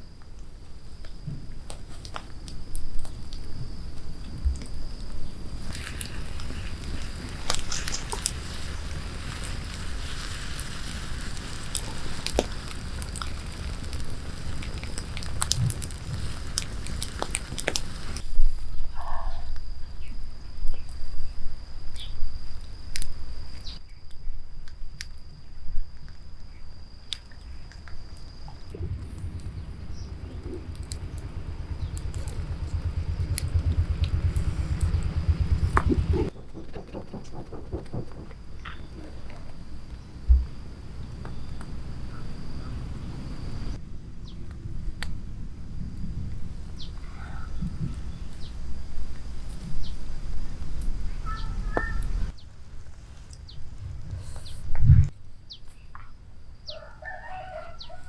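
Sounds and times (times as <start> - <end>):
wood fire crackling: 0.0 - 18.7, 27.2 - 55.1
low rumble of burning: 0.0 - 23.8, 24.9 - 58.0
sharp snaps: 0.2 - 9.8, 11.4 - 18.3, 27.1 - 39.4
wind buffeting microphone: 2.4 - 18.6, 28.5 - 52.4, 53.3 - 55.2
high whine: 28.4 - 55.2.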